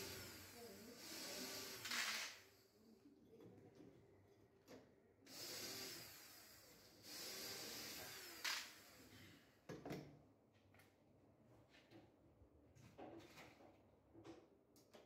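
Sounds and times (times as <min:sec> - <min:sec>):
cordless drill running: 0:00.0 - 0:02.5, 0:05.3 - 0:09.1
drill click: 0:01.5 - 0:02.4, 0:07.2 - 0:09.0.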